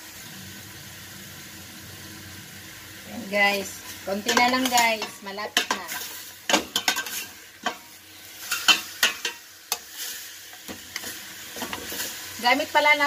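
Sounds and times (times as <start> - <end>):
pork bones sizzling: 0.0 - 13.0
metal ladle scraping a pot: 4.3 - 12.3.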